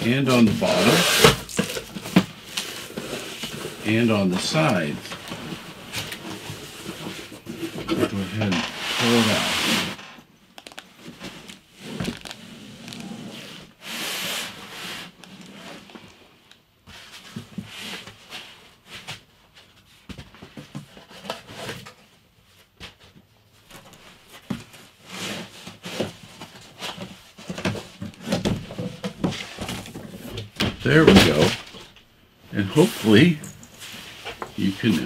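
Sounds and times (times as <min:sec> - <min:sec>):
cardboard and foam scraping: 0:00.3 - 0:10.0, 0:11.0 - 0:15.9, 0:30.9 - 0:31.8, 0:32.7 - 0:35.0
packing rustling: 0:00.5 - 0:04.0, 0:10.6 - 0:13.1.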